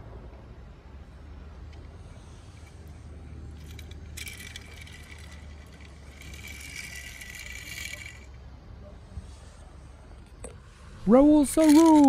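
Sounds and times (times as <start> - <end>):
steady low hum: 0.0 - 12.0
dense rattling rustling noise: 2.0 - 8.3, 10.9 - 12.0.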